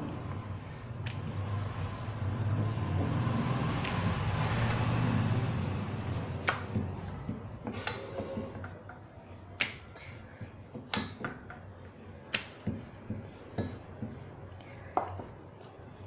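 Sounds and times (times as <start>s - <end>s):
rolling pin rolling dough on stone: 1.1s - 15.1s
dough clicking and tapping on board: 6.3s - 14.3s.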